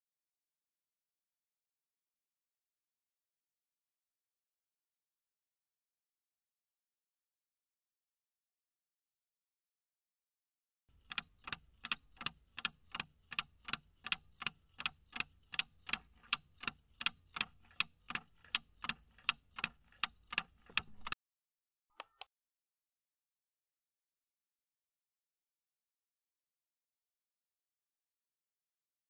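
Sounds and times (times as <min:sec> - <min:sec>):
clock ticking: 0:10.9 - 0:21.2
short clicks: 0:22.0 - 0:22.3.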